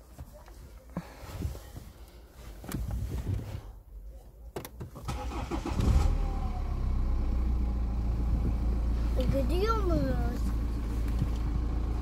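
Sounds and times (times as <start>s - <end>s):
car engine starting and idling: 4.6s - 12.0s.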